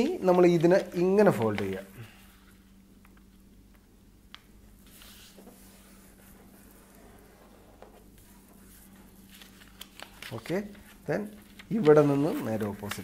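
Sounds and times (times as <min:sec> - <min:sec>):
paper rustling and sliding: 0:04.8 - 0:13.0.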